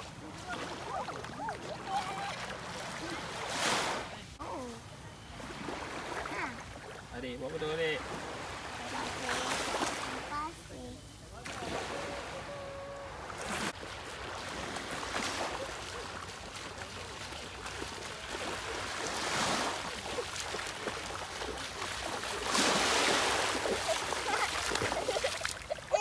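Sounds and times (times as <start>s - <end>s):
feet splashing through shallow water: 0.0s - 4.2s, 13.2s - 26.0s
small waves washing onto sand: 0.0s - 4.4s, 5.1s - 26.0s.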